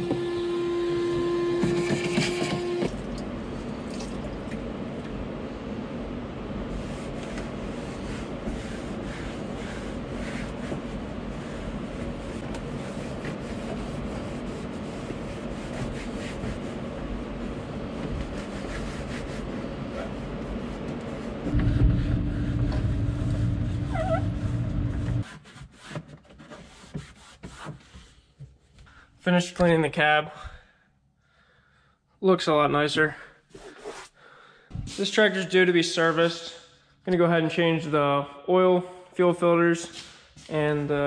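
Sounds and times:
rag rubbing on plastic: 6.7s - 21.5s, 25.2s - 28.2s
machine hum: 19.5s - 25.2s.

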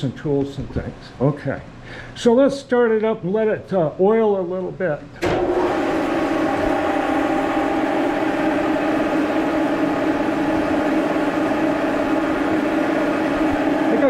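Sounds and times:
machine lever clunk: 5.2s - 5.5s
milling machine running: 5.2s - 14.0s.

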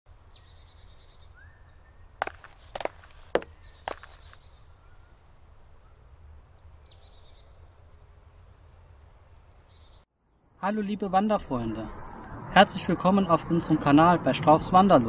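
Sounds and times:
birds chirping: 0.1s - 10.0s.

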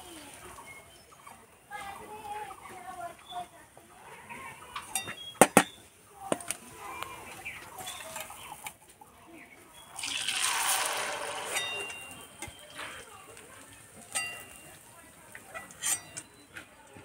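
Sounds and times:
sizzle in hot oil: 10.0s - 12.8s.

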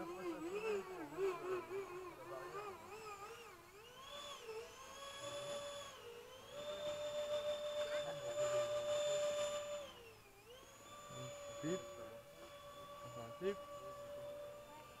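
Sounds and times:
model jet motor whining: 0.0s - 15.0s.

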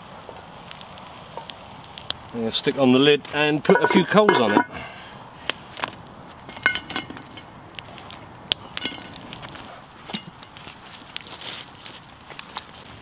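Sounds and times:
campfire crackle: 0.0s - 13.0s
coals knocking on metal lid: 3.6s - 4.8s.

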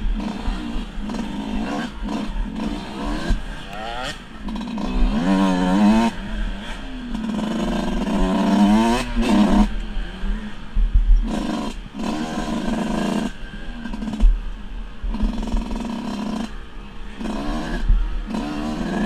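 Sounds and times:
dirt bike engine revving: 0.0s - 19.0s
wind on microphone: 7.6s - 13.2s, 17.2s - 19.0s.

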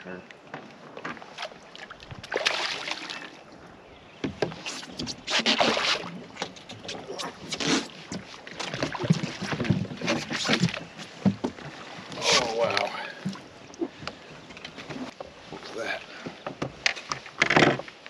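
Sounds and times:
fish thrashing and splashing: 1.4s - 3.5s, 4.5s - 13.5s.

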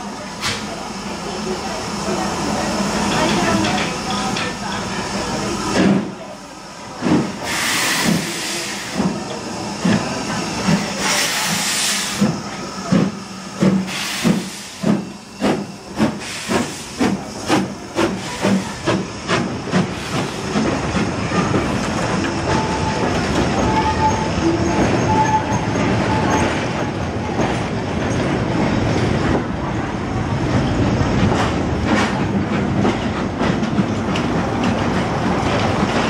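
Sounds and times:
steam locomotive chuffing: 0.0s - 29.5s
steam hissing from cylinders: 0.1s - 24.4s.

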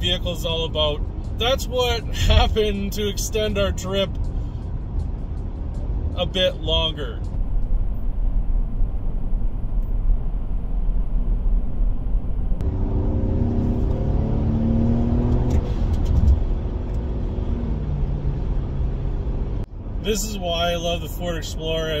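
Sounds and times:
road rumble inside car: 0.0s - 22.0s
engine drone: 4.1s - 20.1s.

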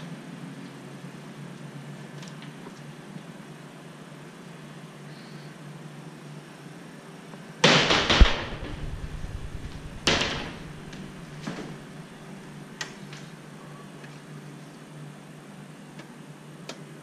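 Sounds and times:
door banging: 7.6s - 11.9s
wooden doors swishing shut: 7.6s - 11.9s.

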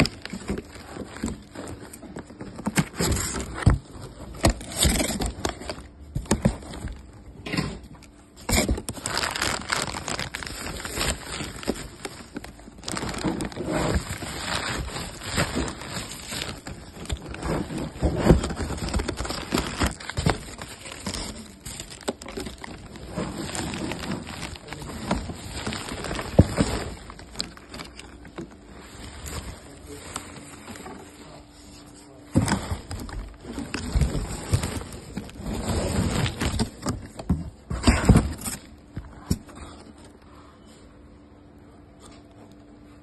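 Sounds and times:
bubble wrap crinkling: 0.0s - 7.1s, 8.3s - 39.0s
cardboard box scraping and knocking: 12.9s - 21.2s, 32.4s - 38.6s.

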